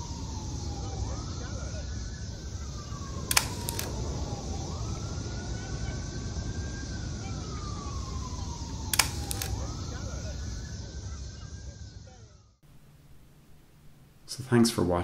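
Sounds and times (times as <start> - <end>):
emergency vehicle siren wailing: 0.0 - 12.6
low rumble of street traffic: 0.0 - 15.0
sharp double click: 3.3 - 3.9, 8.9 - 9.5.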